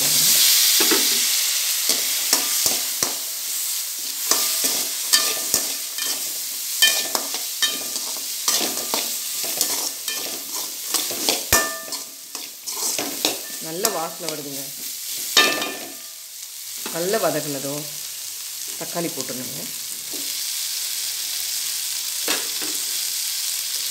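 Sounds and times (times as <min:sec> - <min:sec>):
vegetables sizzling in oil: 0:00.0 - 0:23.9
spatula scraping and clinking on pan: 0:01.9 - 0:03.3, 0:04.0 - 0:16.2.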